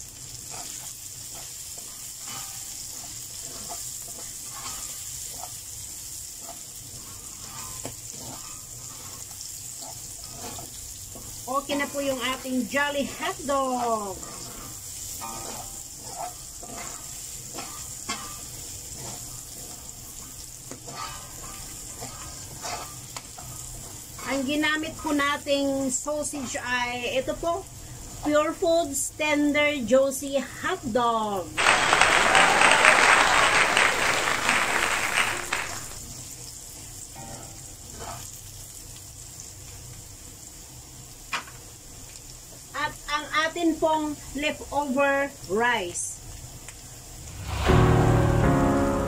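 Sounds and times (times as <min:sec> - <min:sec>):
food sizzling in a wok: 0:00.0 - 0:49.0
wooden spatula scraping pan: 0:00.4 - 0:05.7, 0:06.3 - 0:19.9.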